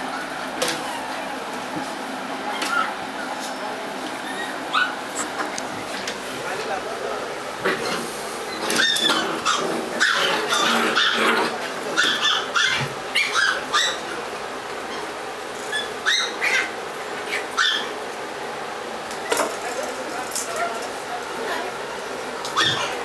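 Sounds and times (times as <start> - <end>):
puppies yipping and barking: 2.4 - 3.6, 4.2 - 5.4, 8.5 - 18.0, 22.4 - 23.0.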